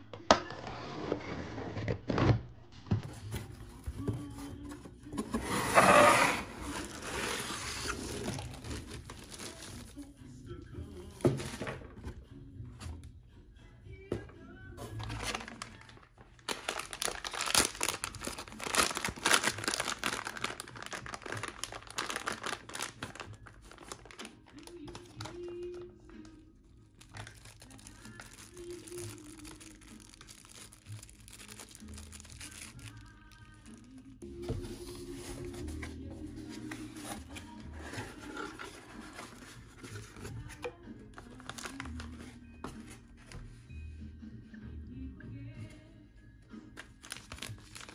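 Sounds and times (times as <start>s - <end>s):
plastic pouch crinkling: 6.7s - 10.0s, 15.0s - 25.9s, 27.0s - 34.2s, 41.2s - 42.2s, 47.0s - 47.9s.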